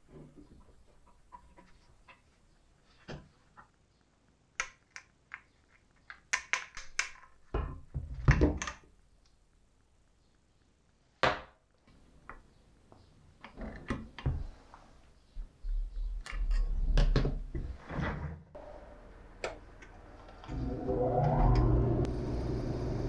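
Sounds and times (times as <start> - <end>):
wood lathe humming: 20.0 - 23.0.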